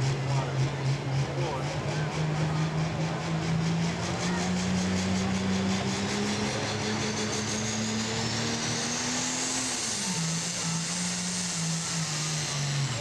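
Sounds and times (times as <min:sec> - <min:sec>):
high whine: 0:00.0 - 0:13.0
tractor diesel engine at full power: 0:00.0 - 0:13.0.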